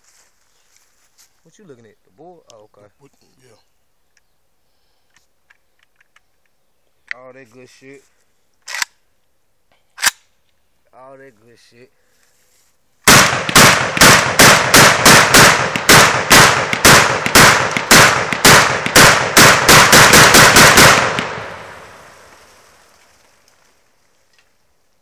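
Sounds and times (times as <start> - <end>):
rifle shots: 13.1 - 22.6
gunshot echo: 13.1 - 22.7.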